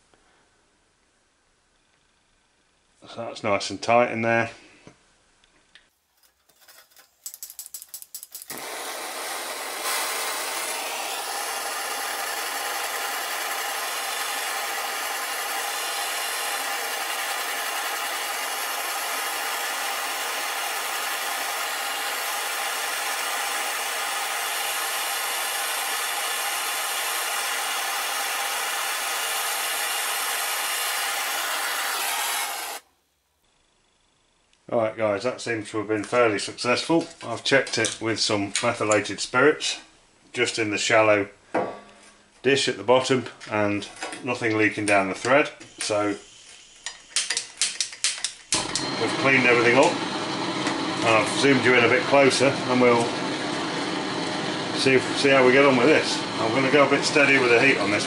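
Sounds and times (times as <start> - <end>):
blowtorch igniter clicks: 7.9 - 14.2, 46.8 - 48.9
blowtorch flame hissing: 8.5 - 32.9, 45.6 - 47.4, 48.5 - 58.0.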